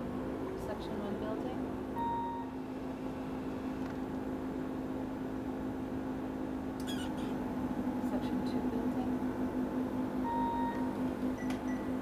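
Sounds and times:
short electronic beep: 2.0s - 2.5s, 10.2s - 10.8s.

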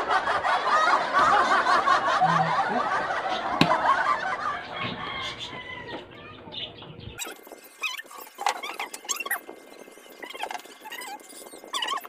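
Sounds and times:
people laughing: 0.0s - 6.0s.

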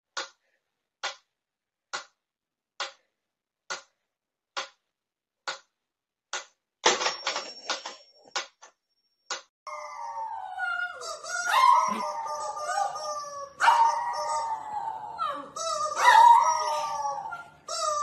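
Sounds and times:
regular ticking clicks: 0.1s - 0.4s, 1.0s - 6.6s.

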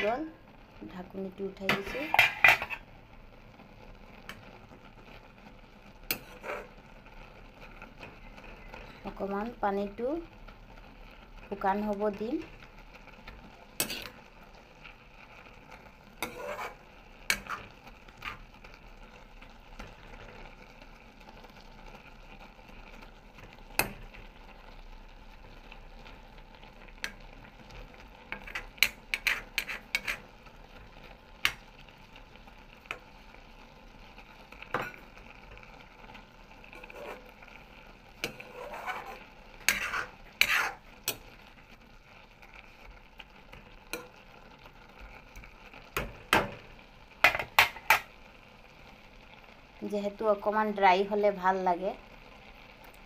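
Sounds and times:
faint sizzle: 0.0s - 53.0s
metal spoon scraping a pan: 1.6s - 2.9s, 6.0s - 6.8s, 13.3s - 14.3s, 16.1s - 18.5s, 23.4s - 24.3s, 27.0s - 30.4s, 34.6s - 35.6s, 36.6s - 37.6s, 38.2s - 41.5s, 43.5s - 44.2s, 47.2s - 48.1s.

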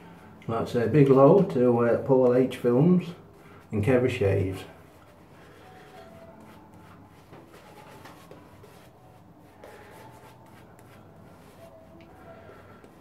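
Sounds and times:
shaving brush swishing on stubble: 3.8s - 12.0s.

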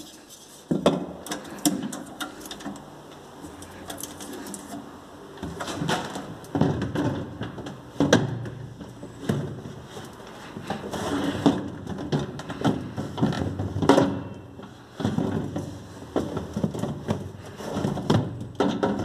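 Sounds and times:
plastic drawer knocking and scraping: 5.5s - 10.0s, 15.0s - 19.0s.

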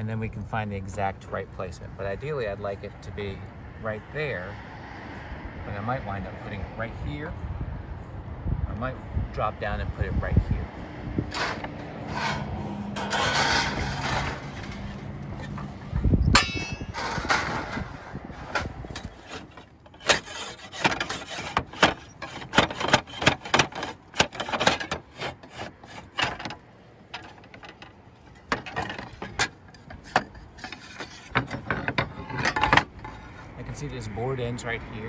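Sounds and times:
metal knocks and scrapes on slate: 11.2s - 33.6s.

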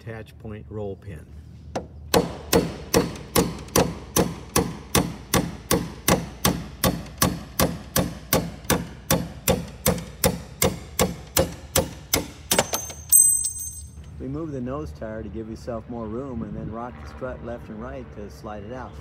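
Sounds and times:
hammer striking metal punch: 1.8s - 14.0s.

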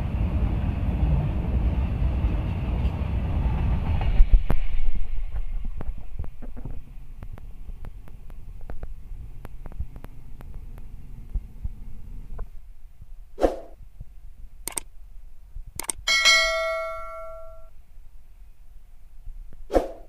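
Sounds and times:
low outdoor rumble: 0.0s - 20.0s
swoosh: 13.4s - 13.8s, 19.7s - 20.0s
sharp mouse clicks: 14.7s - 14.9s, 15.8s - 16.0s
notification bell ding: 16.1s - 17.7s.

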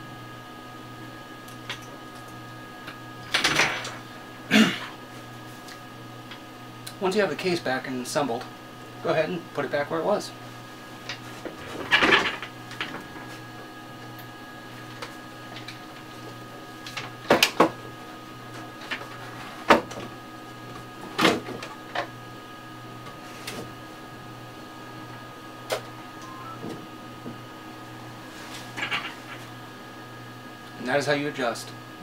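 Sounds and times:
electrical hum: 0.0s - 32.0s.

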